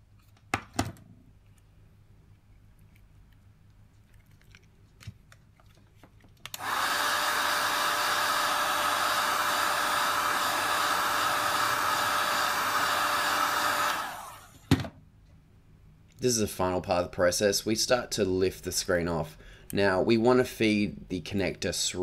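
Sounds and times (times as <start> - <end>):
hot air gun blowing: 6.6 - 14.6.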